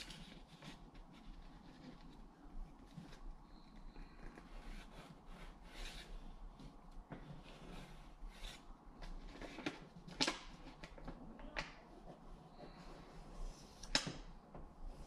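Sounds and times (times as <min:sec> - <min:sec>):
pencil scratching on drywall: 0:04.0 - 0:06.4, 0:07.3 - 0:08.7.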